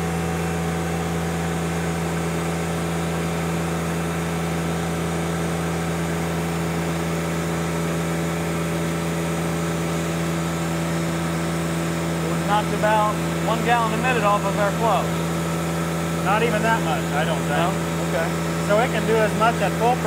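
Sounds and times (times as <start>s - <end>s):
diesel engine at full throttle: 0.0s - 20.0s.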